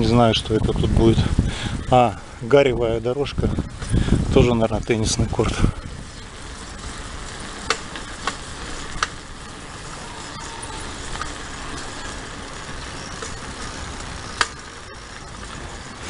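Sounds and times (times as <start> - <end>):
bicycle rumbling on paved path: 0.0 - 16.0
tyre noise: 0.0 - 16.0
wind noise: 0.0 - 16.0
sharp clicks and rattles: 3.4 - 9.7, 10.8 - 16.0.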